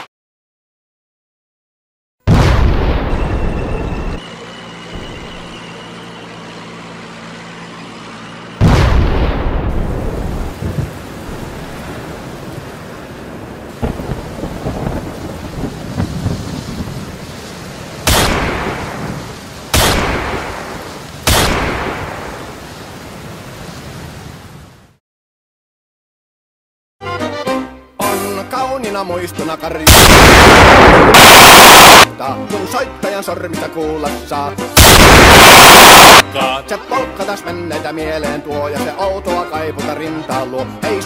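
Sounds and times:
loud boom with rumble: 2.3 - 4.2, 8.6 - 10.9, 29.9 - 32.1
sharp echoing gunshots: 18.0 - 19.0, 19.7 - 22.3, 29.9 - 32.1, 34.8 - 36.3.

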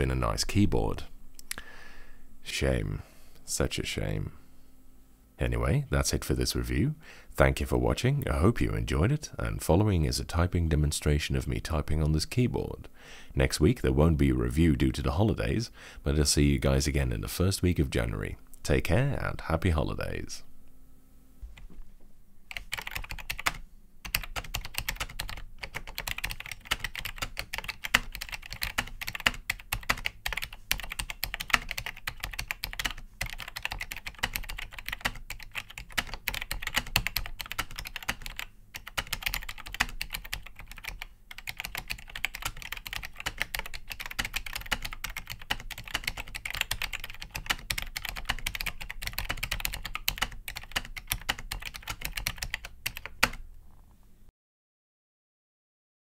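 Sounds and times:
keyboard typing clatter: 22.5 - 53.4.

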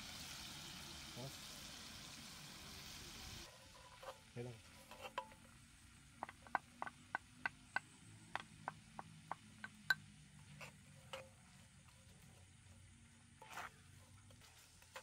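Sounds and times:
wooden spoon tapping ceramic bowl: 6.2 - 10.1.

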